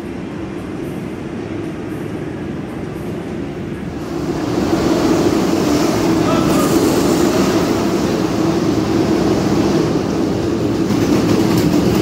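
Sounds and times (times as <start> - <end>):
go-karts mechanical drone: 4.0 - 12.0.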